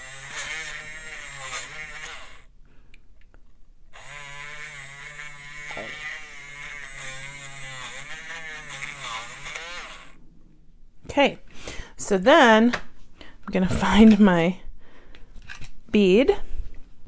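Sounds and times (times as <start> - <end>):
bead reamer buzzing: 0.0 - 2.5, 4.0 - 10.2.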